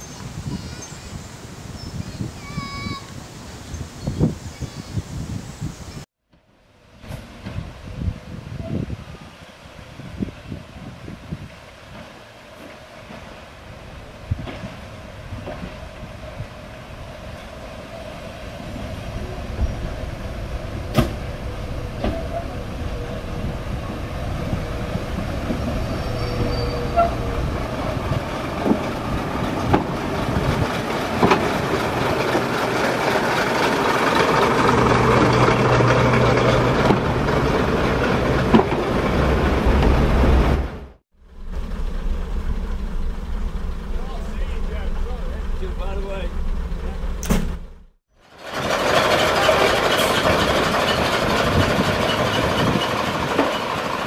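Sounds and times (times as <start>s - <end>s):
diesel train engines: 6.8s - 54.0s
train wheels on rails: 11.3s - 40.8s, 41.5s - 54.0s.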